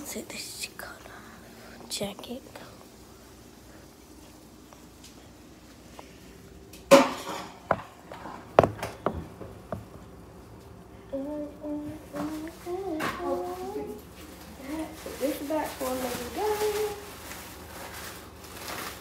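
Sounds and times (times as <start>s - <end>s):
pans and utensils clattering: 6.9s - 8.4s.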